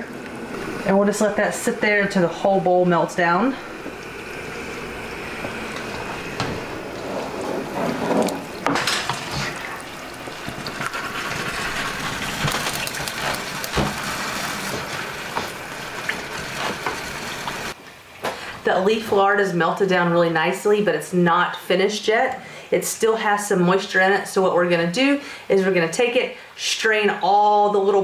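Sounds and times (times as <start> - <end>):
wooden spoon stirring fat: 0.0 - 17.8
pots bubbling: 0.0 - 19.5.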